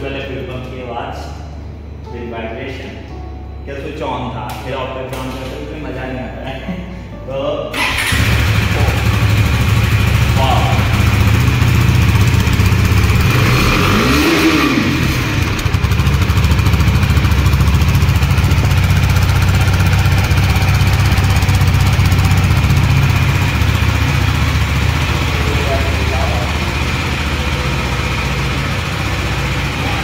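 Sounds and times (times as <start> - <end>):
engine revving: 7.8 - 30.0
motorcycle engine idling: 7.8 - 30.0.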